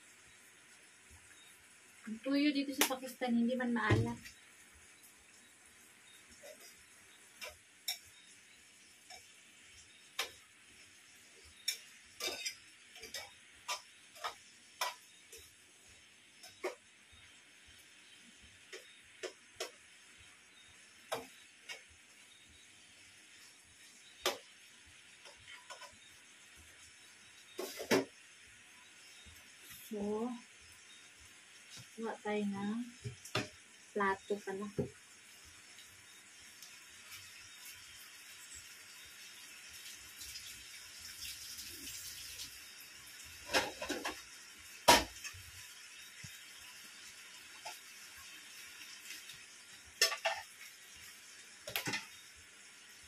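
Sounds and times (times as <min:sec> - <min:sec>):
faint steady hiss: 0:00.0 - 0:53.0
kitchen utensils clinking: 0:11.5 - 0:15.5, 0:43.4 - 0:44.2, 0:50.0 - 0:50.6, 0:51.7 - 0:52.2
dishes clattering: 0:11.7 - 0:15.0, 0:43.5 - 0:44.2, 0:50.0 - 0:50.5.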